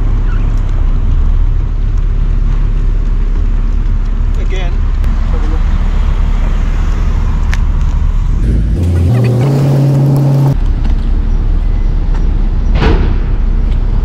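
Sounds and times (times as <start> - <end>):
low rumble of traffic: 0.0 - 14.0
car engine revving up: 8.0 - 10.6.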